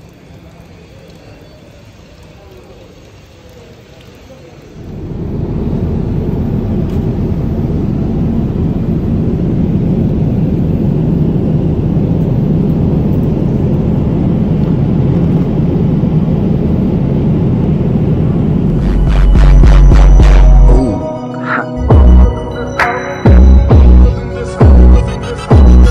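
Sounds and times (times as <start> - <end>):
jet cabin engine and airflow rush: 4.8 - 25.5.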